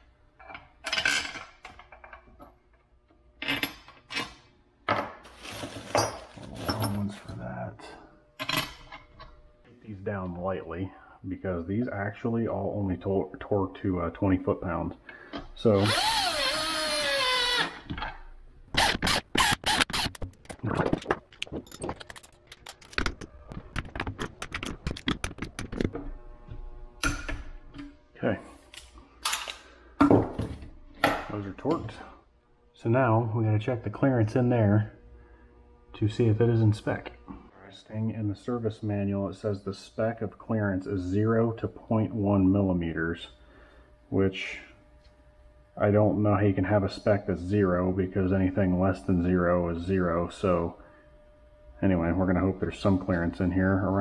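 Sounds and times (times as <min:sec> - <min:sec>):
metal tools clattering on workbench: 0:04.9 - 0:07.2
cordless drill motor whine: 0:15.8 - 0:17.8.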